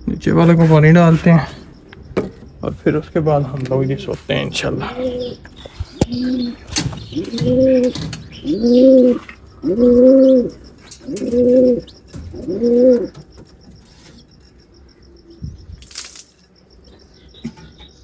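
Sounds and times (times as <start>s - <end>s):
pigeon cooing: 4.6s - 14.3s.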